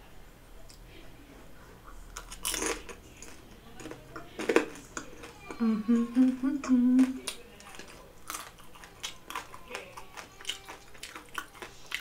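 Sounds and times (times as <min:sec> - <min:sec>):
person chewing dumpling: 0:01.8 - 0:12.0
woman humming: 0:05.4 - 0:07.3.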